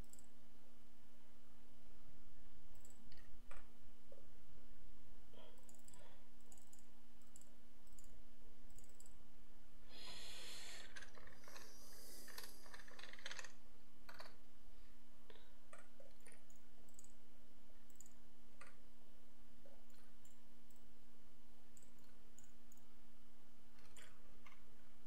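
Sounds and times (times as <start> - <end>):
computer mouse clicking: 0.0 - 0.3, 2.7 - 3.7, 5.5 - 9.2, 10.0 - 14.4, 15.7 - 17.2, 17.9 - 18.8, 19.8 - 20.9, 21.8 - 22.9, 23.8 - 24.6
steady low hum: 0.0 - 25.0
typing on keyboard: 12.3 - 14.4.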